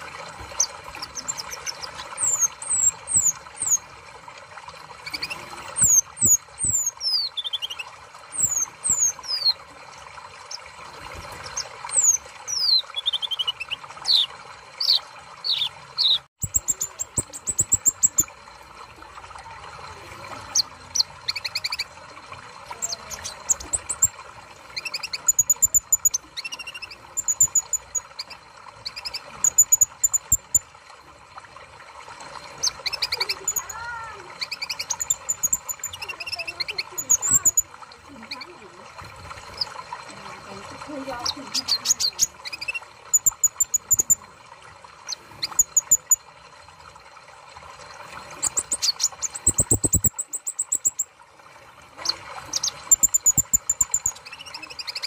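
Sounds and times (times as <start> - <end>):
sunbird singing: 5.0 - 9.6, 11.5 - 18.3
rapid chirping trill: 11.5 - 18.2, 48.4 - 51.0.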